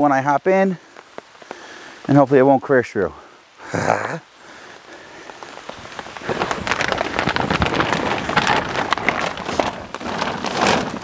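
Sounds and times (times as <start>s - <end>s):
plastic liners crinkling: 4.8s - 11.0s.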